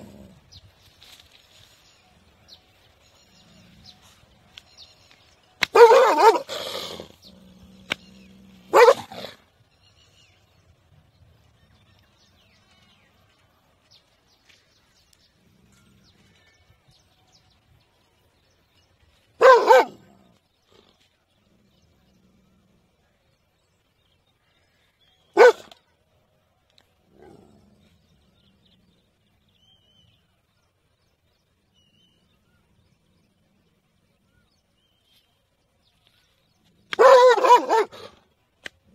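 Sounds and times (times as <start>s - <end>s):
dog barking: 5.7s - 7.0s, 8.7s - 9.4s, 19.4s - 20.1s, 25.4s - 25.8s, 36.9s - 38.2s.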